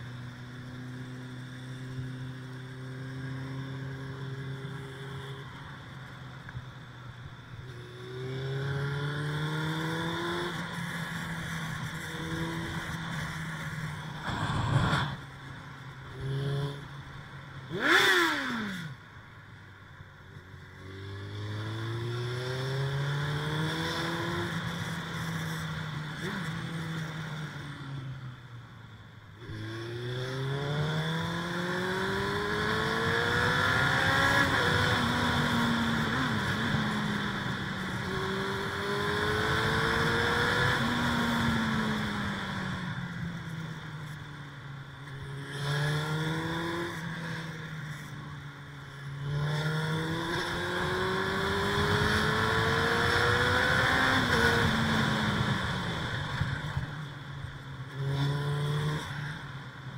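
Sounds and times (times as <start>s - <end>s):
motorcycle engine accelerating: 7.6s - 19.0s, 29.4s - 44.2s, 45.1s - 59.5s.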